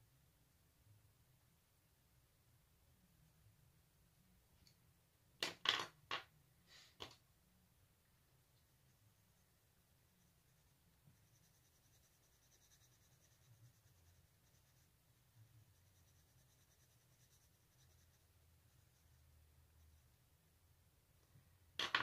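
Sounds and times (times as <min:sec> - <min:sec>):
pencil scratching on paper: 0:08.7 - 0:20.2.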